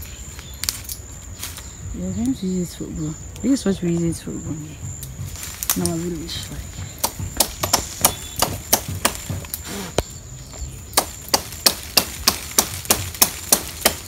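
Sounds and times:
blade chopping palm leaves: 0:05.1 - 0:10.1, 0:10.9 - 0:14.0.

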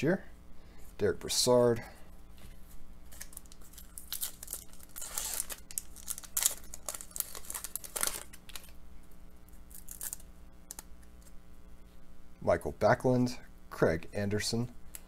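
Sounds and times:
cards being handled: 0:02.4 - 0:08.8
foil wrapper tearing and crinkling: 0:03.1 - 0:08.8, 0:09.7 - 0:10.8.

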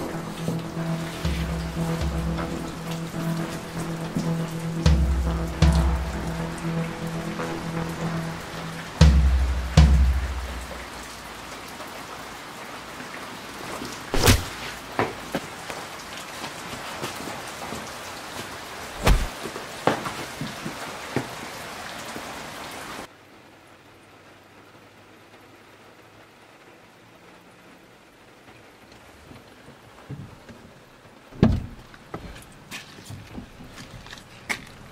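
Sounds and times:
sharp knocks and drips: 0:00.0 - 0:11.0, 0:31.4 - 0:34.9
steady rain falling: 0:00.0 - 0:34.9
heavy low thud: 0:00.1 - 0:06.6, 0:09.0 - 0:10.9, 0:19.0 - 0:19.3.

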